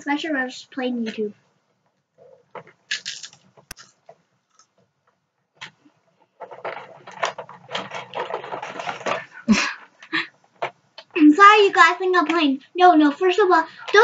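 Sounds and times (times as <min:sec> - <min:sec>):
plastic toy gears rattling: 0:02.2 - 0:04.7, 0:06.3 - 0:10.8.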